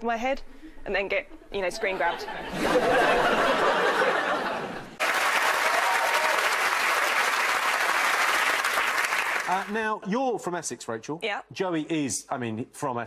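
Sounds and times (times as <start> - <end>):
audience laughing: 1.8 - 5.2
audience applause: 3.4 - 9.8.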